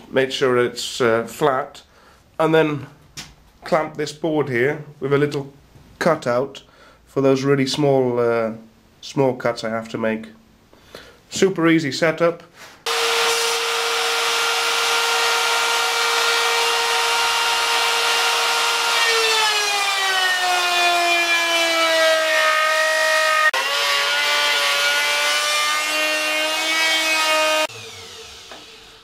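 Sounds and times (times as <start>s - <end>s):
electric router whining: 12.9s - 29.0s
router cutting wood: 12.9s - 29.0s.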